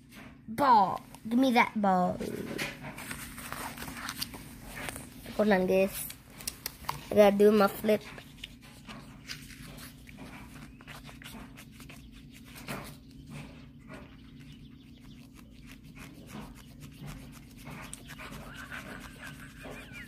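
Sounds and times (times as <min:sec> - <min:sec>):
paper page rustling: 0:02.3 - 0:13.1
fingers clicking on paper: 0:07.5 - 0:20.0.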